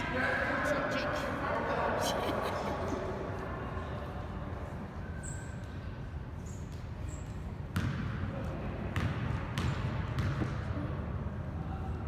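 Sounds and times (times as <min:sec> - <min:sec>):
murmur of voices: 0:00.0 - 0:05.0
basketball bouncing on gym floor: 0:06.7 - 0:11.0.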